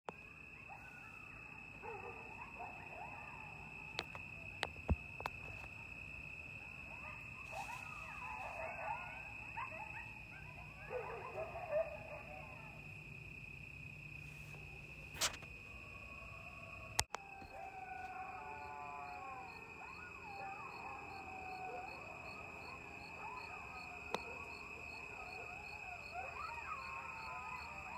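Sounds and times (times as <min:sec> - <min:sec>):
crickets chirring: 0:00.1 - 0:27.9
coyotes yipping and howling: 0:00.2 - 0:27.9.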